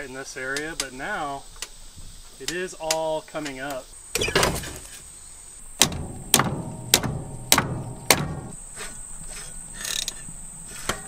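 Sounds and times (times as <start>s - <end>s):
sharp knocks on metal: 5.8s - 8.6s.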